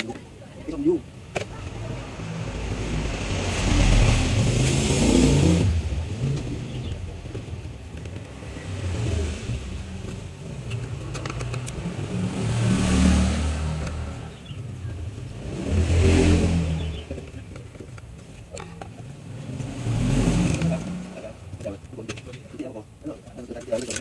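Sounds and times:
traffic passing close by: 0:00.0 - 0:22.8.

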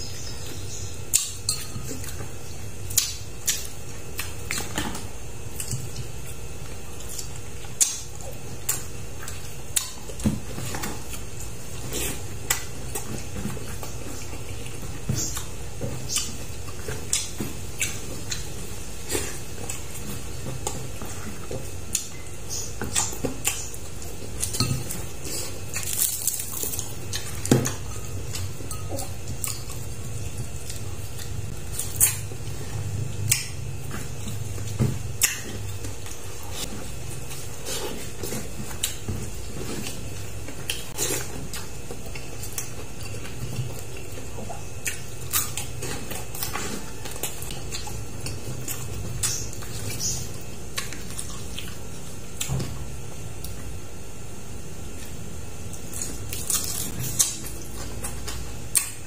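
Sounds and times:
steady low hum: 0:00.0 - 0:59.0
eating clicks and smacks: 0:01.1 - 0:06.3, 0:07.0 - 0:11.3, 0:19.6 - 0:25.1, 0:33.1 - 0:37.5, 0:39.8 - 0:52.8, 0:55.0 - 0:59.0.

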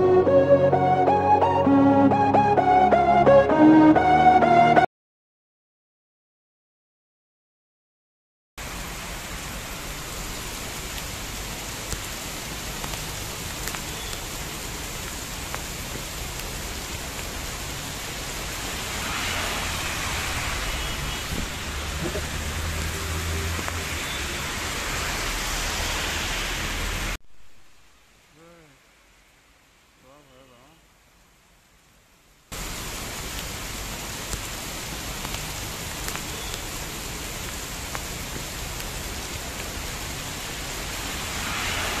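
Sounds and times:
heavy rain on pavement: 0:08.6 - 0:42.0.

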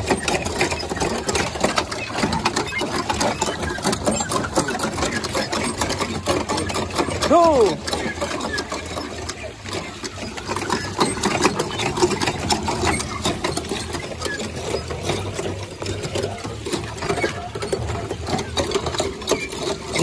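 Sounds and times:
hand pump handles clattering: 0:00.0 - 0:20.0.

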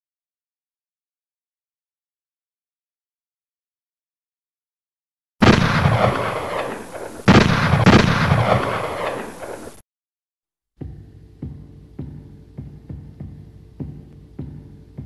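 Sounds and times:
echoing gunshots: 0:05.4 - 0:09.8
low throbbing hum with ticks: 0:10.8 - 0:15.0.

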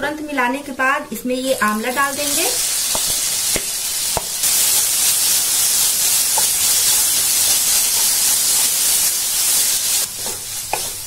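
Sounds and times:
oil and spices sizzling: 0:01.2 - 0:11.0
wooden spatula stirring: 0:10.1 - 0:11.0.

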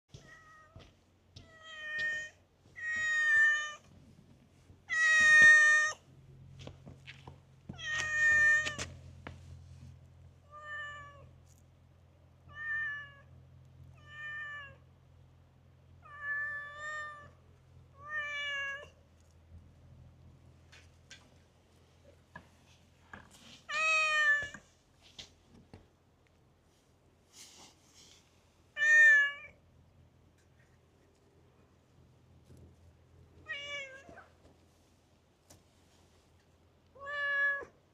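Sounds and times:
cat meowing: 0:00.1 - 0:00.8, 0:10.5 - 0:11.3, 0:12.5 - 0:13.3, 0:16.0 - 0:17.4, 0:33.4 - 0:34.3, 0:37.0 - 0:37.8.

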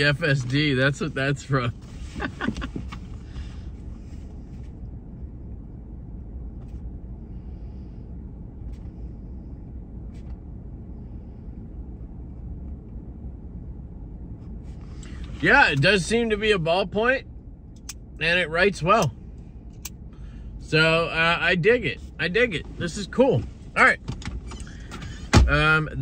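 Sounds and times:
truck engine idling: 0:13.5 - 0:26.0.

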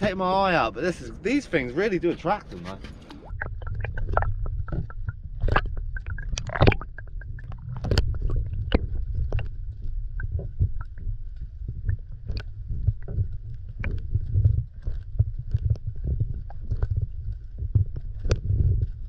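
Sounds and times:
muffled underwater rumble: 0:00.0 - 0:19.0
sharp clicks and knocks: 0:02.1 - 0:09.6.

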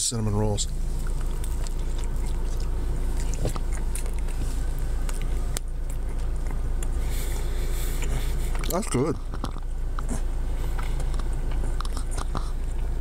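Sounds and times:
steady low rumble: 0:00.0 - 0:13.0
person chewing: 0:00.8 - 0:13.0
wet mouth clicks: 0:01.0 - 0:04.4, 0:07.9 - 0:12.9.

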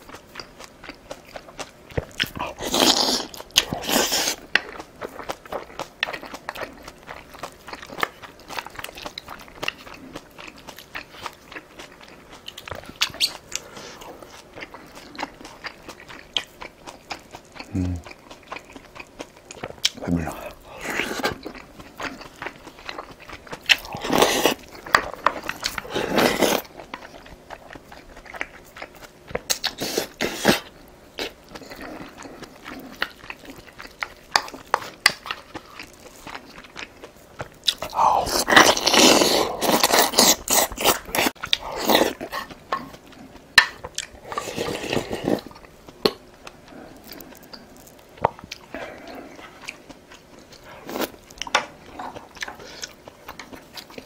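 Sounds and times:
chewing and crunching food: 0:00.0 - 0:54.0.

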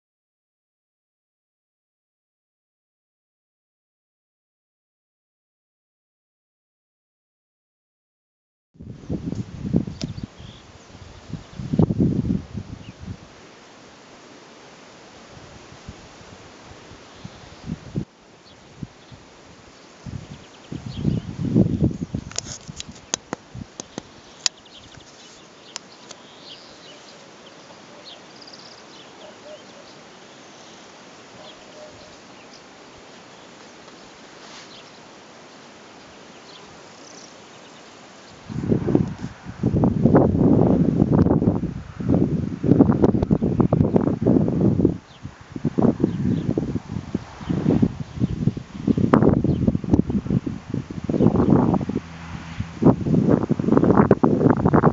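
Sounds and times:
wind buffeting microphone: 0:08.8 - 0:13.3, 0:15.3 - 0:25.1, 0:38.3 - 0:54.9
open-air hiss: 0:08.8 - 0:54.9
faint bird chirps: 0:09.9 - 0:11.0, 0:23.8 - 0:35.1
high bird trill: 0:23.9 - 0:32.7.

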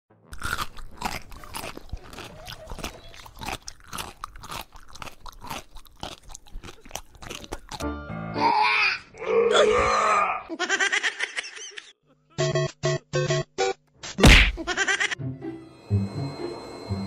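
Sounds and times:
pet crunching food: 0:00.3 - 0:07.8.

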